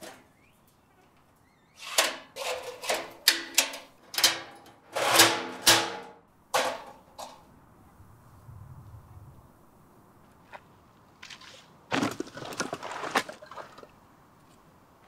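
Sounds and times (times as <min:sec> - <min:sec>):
metal clanks and scrapes: 0:01.8 - 0:07.4.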